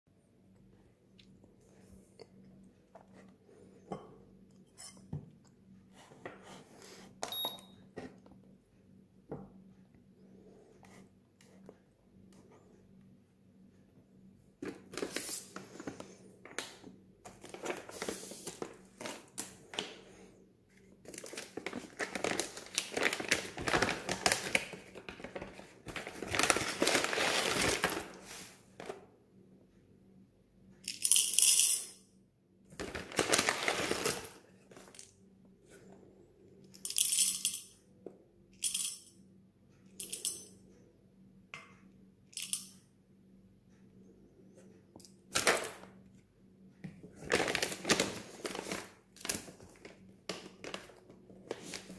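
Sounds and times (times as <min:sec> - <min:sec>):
foil bag crinkling: 0:21.1 - 0:28.5, 0:32.8 - 0:34.4, 0:47.2 - 0:51.9.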